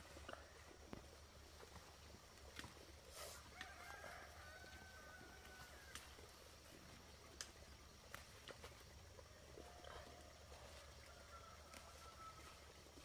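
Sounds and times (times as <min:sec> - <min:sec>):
faint rooster crow: 0:03.4 - 0:06.2, 0:09.6 - 0:12.9.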